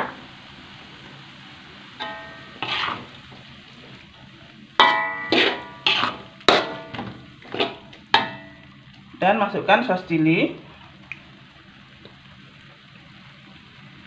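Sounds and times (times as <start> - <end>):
sauce sizzling: 0.0 - 14.0
metal spatula knocking on wok: 2.0 - 2.5, 4.8 - 8.5.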